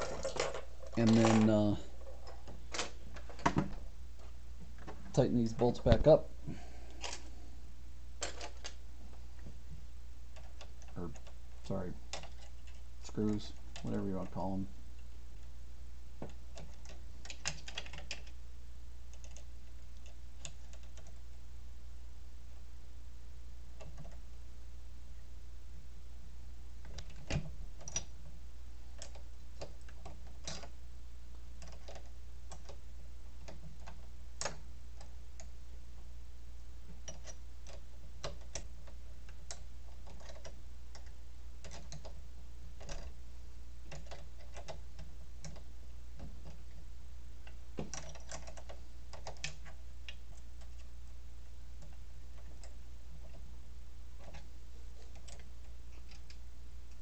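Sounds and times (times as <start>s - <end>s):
steady low hum: 0.0s - 57.0s
hex key clicking and tapping metal: 37.0s - 42.2s, 43.9s - 46.6s.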